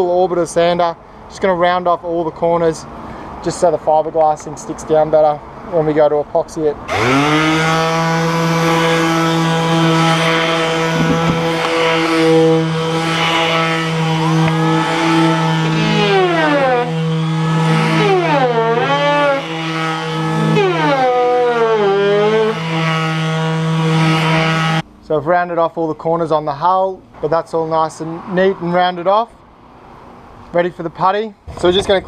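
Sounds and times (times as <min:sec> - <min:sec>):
orbital sander whining: 0:06.9 - 0:24.9.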